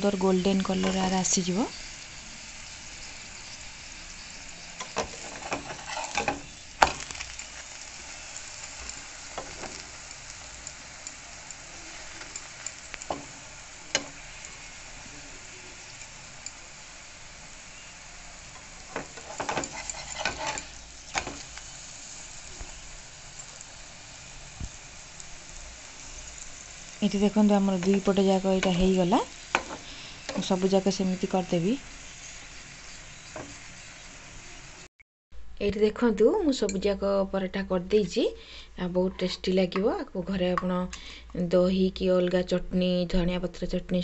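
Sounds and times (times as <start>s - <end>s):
flatbread sizzling in oil: 0.0s - 34.9s
metal spatula scraping a pan: 4.7s - 10.0s, 10.6s - 16.6s, 18.5s - 21.7s, 27.1s - 30.6s.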